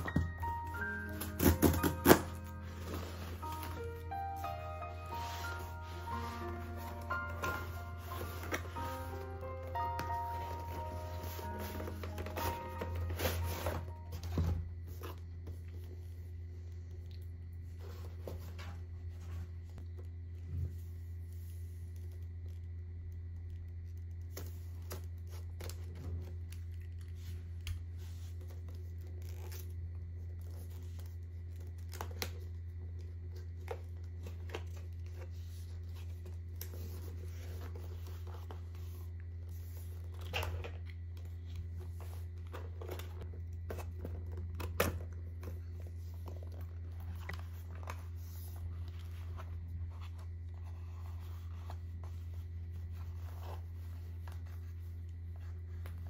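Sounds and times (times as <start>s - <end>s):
cardboard box rustling: 0.0s - 15.6s.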